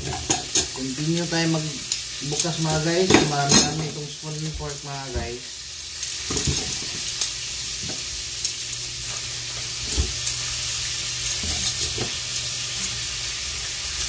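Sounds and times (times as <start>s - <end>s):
metal cutlery clicking: 0.0s - 4.0s, 11.2s - 13.0s
steady hiss: 0.0s - 14.0s.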